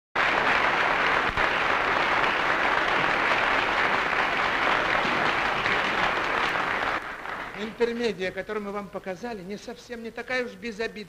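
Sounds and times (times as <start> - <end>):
audience applauding: 0.2 - 8.1.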